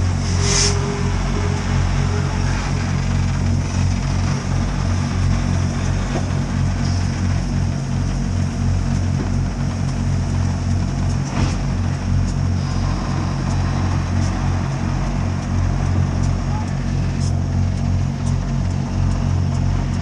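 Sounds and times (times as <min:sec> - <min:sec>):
hiss of steam: 0:00.0 - 0:02.5
steam locomotive rumbling: 0:00.0 - 0:20.0.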